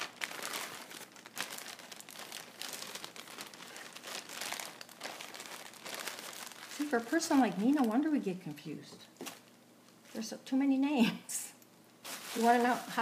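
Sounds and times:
plastic bag crinkling: 0.0 - 8.1, 12.0 - 13.0.

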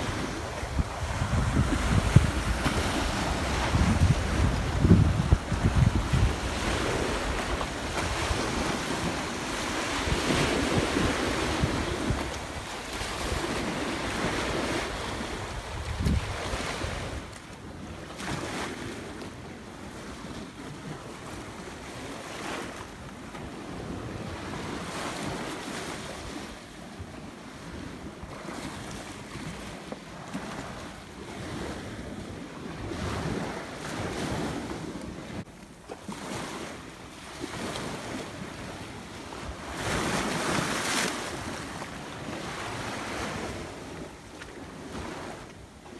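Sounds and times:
wind buffeting microphone: 0.0 - 18.5
waves surging against shore: 0.0 - 45.9.

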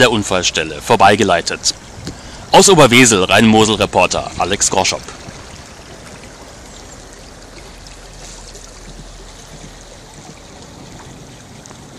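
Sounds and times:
river water lapping: 0.0 - 11.9.

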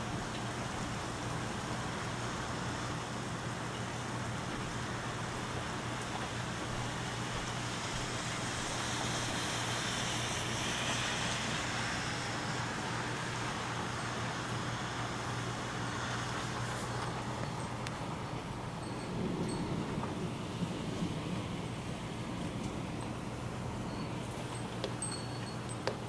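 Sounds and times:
steady rain hiss: 0.0 - 26.0
tyres on wet pavement: 0.0 - 26.0.

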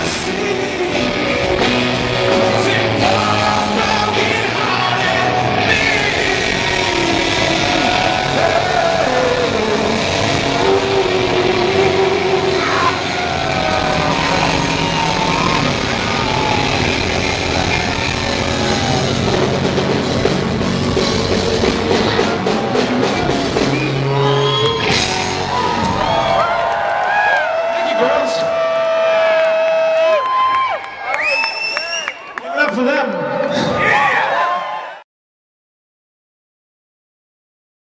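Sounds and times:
bass guitar: 0.0 - 27.3
electric guitars: 0.0 - 27.7
drums: 0.0 - 30.5.

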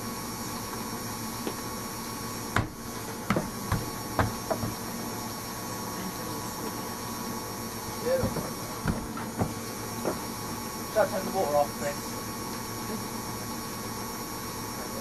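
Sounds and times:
washing machine spinning: 0.0 - 15.0
sharp knocks: 2.6 - 4.8.

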